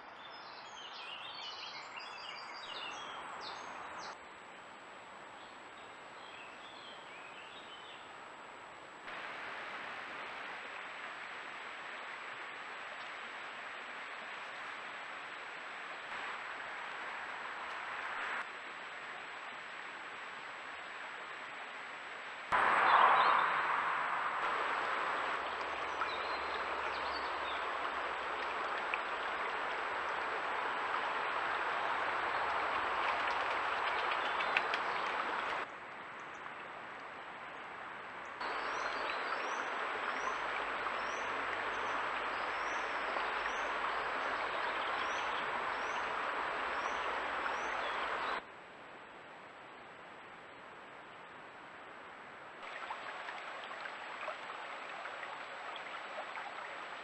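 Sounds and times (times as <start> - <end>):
steady hiss: 8.1 - 22.7.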